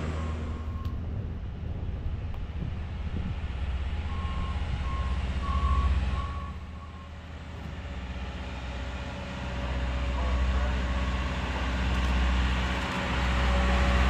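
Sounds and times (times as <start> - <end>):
rail machine engine rumbling: 0.0 - 14.0
warning alarm beeping: 4.1 - 7.2.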